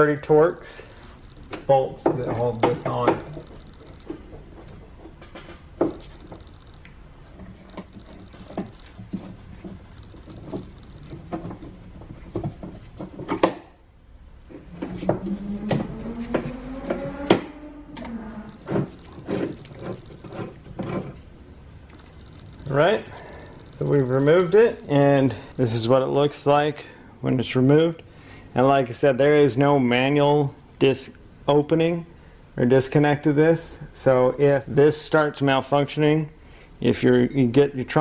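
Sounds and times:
squeaky rubbing: 14.5s - 21.4s.

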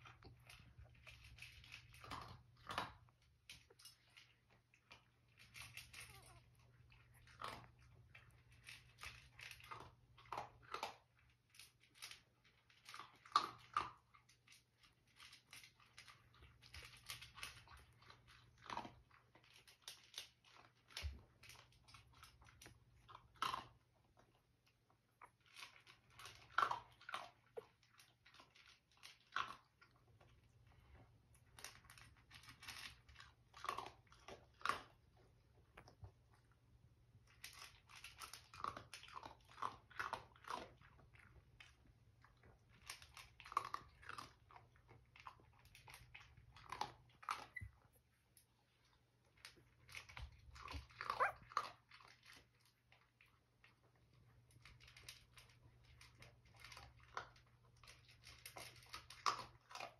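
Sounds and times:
puppies squeaking: 50.9s - 51.6s.

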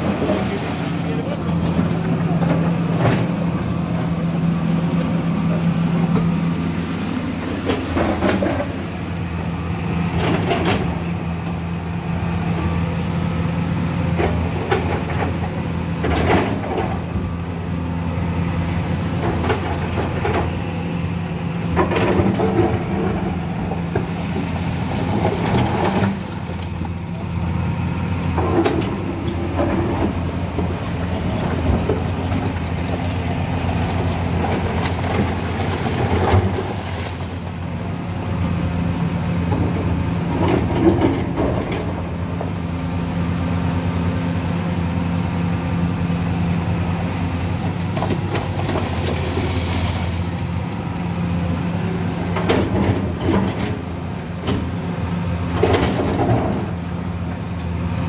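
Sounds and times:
excavator diesel engine running: 0.0s - 58.0s
bucket scraping: 47.8s - 50.4s.

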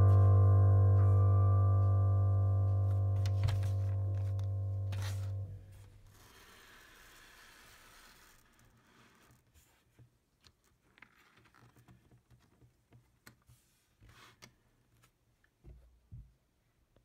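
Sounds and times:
low bumps: 0.0s - 6.0s
calendar page turning: 2.9s - 5.6s.

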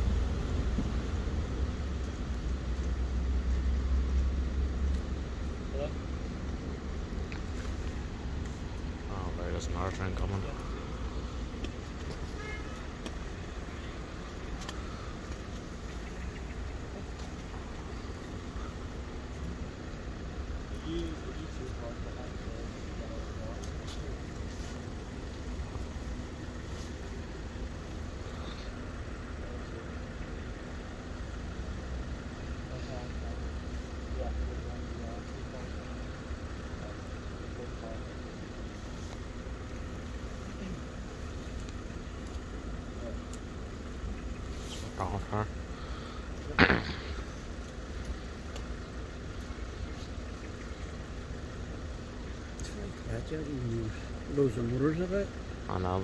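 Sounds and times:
faint engine hum: 0.0s - 56.0s
road traffic rumble: 0.0s - 56.0s.

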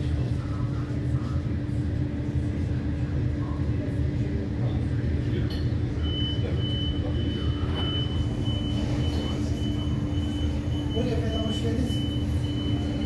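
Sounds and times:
constant hum: 0.0s - 13.0s.

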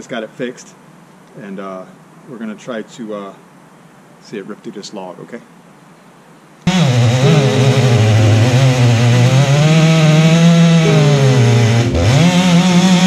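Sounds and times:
chainsaw cutting a log: 6.7s - 13.0s.

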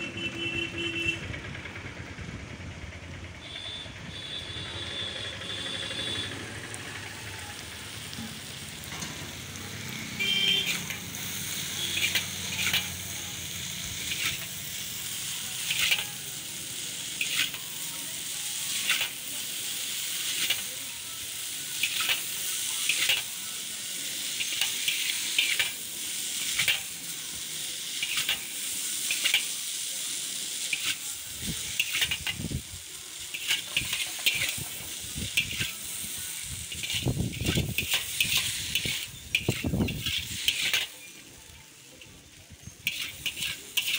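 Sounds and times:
noodles sizzling in a wok: 1.7s - 43.9s
spatula scraping metal pan: 10.2s - 11.0s, 11.8s - 13.0s, 14.0s - 14.5s, 15.6s - 16.2s, 17.2s - 17.7s, 21.8s - 23.4s, 24.4s - 25.8s, 28.0s - 28.5s, 31.8s - 32.4s, 33.3s - 34.7s, 36.7s - 41.2s, 42.8s - 43.9s.

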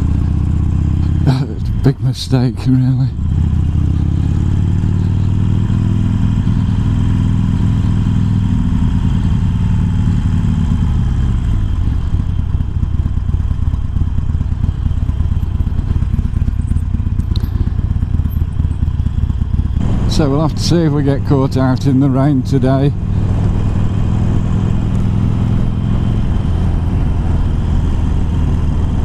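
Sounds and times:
motorcycle engine rumbling: 0.0s - 29.0s.

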